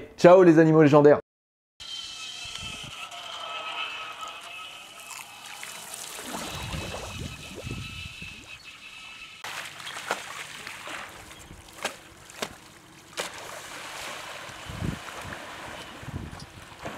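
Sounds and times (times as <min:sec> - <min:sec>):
water hissing and splashing: 0:04.7 - 0:11.9
wind on microphone: 0:06.2 - 0:08.6, 0:14.5 - 0:16.9.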